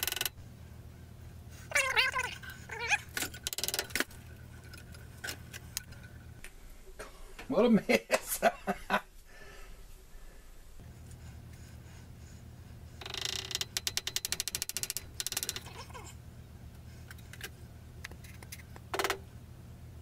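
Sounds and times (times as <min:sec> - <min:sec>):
rapid ratcheting clicks: 0:00.0 - 0:00.4, 0:13.0 - 0:15.8
low steady hum: 0:00.0 - 0:20.0.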